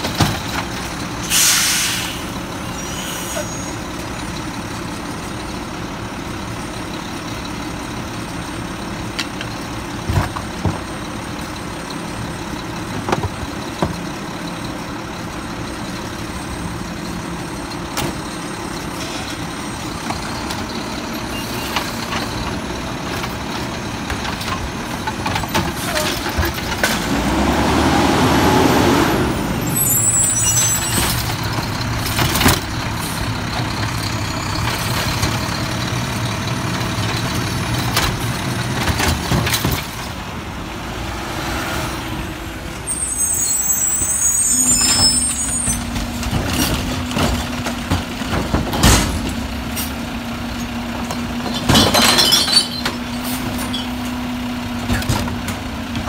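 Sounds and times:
air brake hisses: 0:01.2 - 0:03.8
garbage truck engine running: 0:03.8 - 0:41.2.

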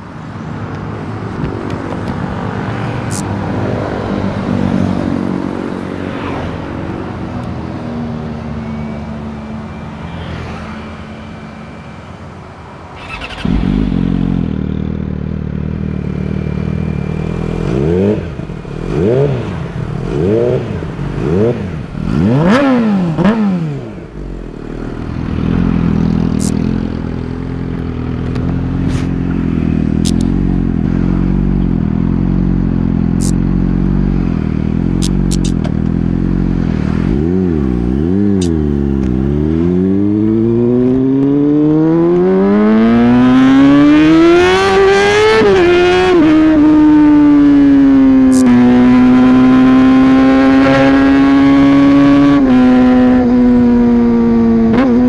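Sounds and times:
motorcycle engine revving: 0:13.0 - 0:55.0.

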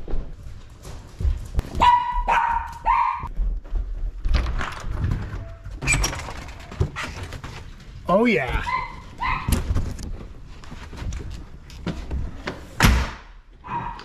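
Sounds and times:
footsteps: 0:00.0 - 0:05.7
dog barking: 0:01.8 - 0:03.3, 0:08.6 - 0:09.6, 0:13.6 - 0:14.0.

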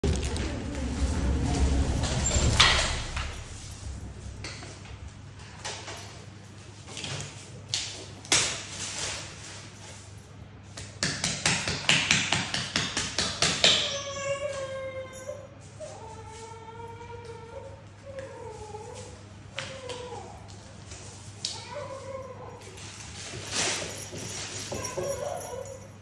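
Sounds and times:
packaging crinkles: 0:00.0 - 0:02.0
cloth and packaging rustling: 0:20.7 - 0:26.0.

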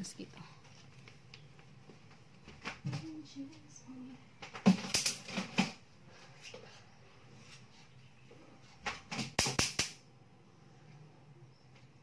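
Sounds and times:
sharp hand slaps: 0:09.4 - 0:10.0.

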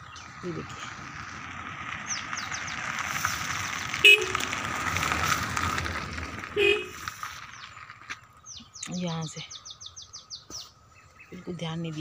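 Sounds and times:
vehicle passing: 0:00.0 - 0:08.6
car horn toots: 0:04.0 - 0:04.6, 0:06.6 - 0:07.0.

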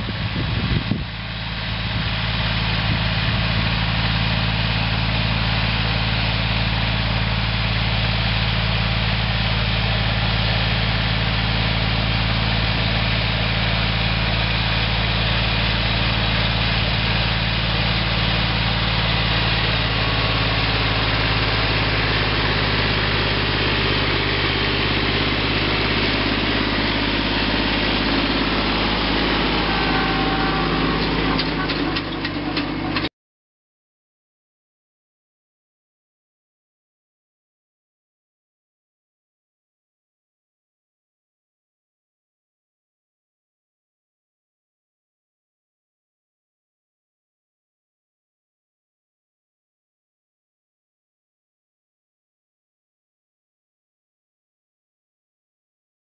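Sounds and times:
diesel tractor engine running: 0:00.0 - 0:33.1.

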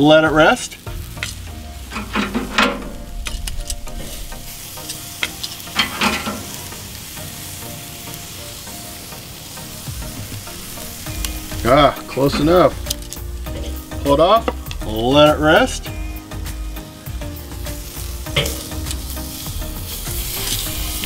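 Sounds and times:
chicken sizzling on a grill: 0:00.0 - 0:21.0
knocks and scrapes: 0:01.2 - 0:06.6.

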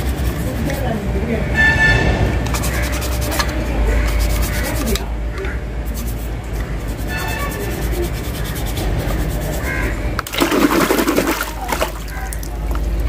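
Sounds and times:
toothbrush scrubbing plastic: 0:00.0 - 0:01.0, 0:02.5 - 0:05.1, 0:05.9 - 0:09.9.

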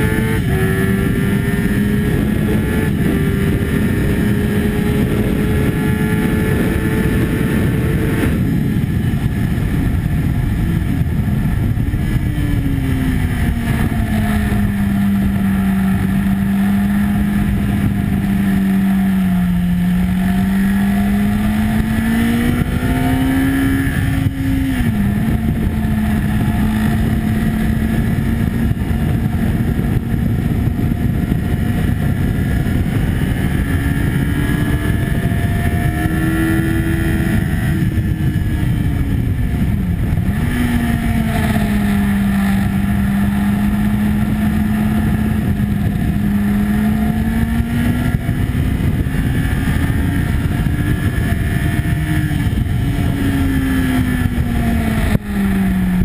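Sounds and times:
motorcycle engine: 0:00.0 - 0:56.0
wind noise on microphone: 0:00.0 - 0:56.0.

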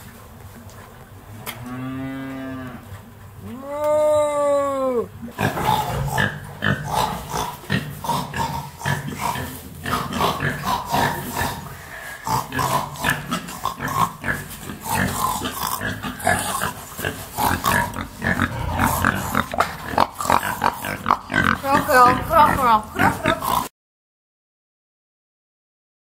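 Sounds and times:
cow mooing: 0:01.5 - 0:02.9, 0:18.2 - 0:19.4
pigs grunting: 0:01.6 - 0:23.7.

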